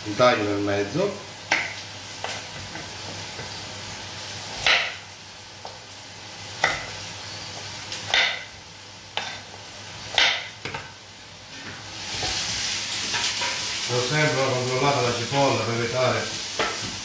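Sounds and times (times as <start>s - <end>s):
onion sizzling in a pot: 0.0s - 17.0s.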